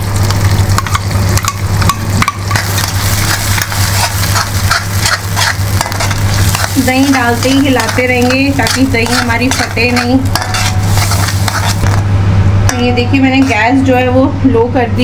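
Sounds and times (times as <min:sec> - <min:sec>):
masala sizzling in a pan: 0:00.0 - 0:12.2
spatula scraping and tapping pan: 0:00.3 - 0:12.0.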